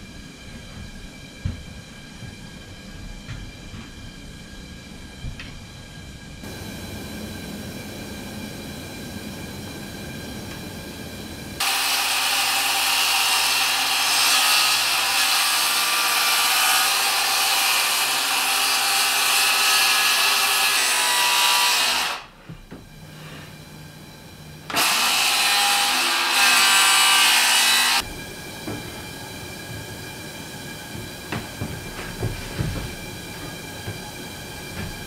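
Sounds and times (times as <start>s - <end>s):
circular saw cutting wood: 11.6s - 22.3s, 24.7s - 28.1s.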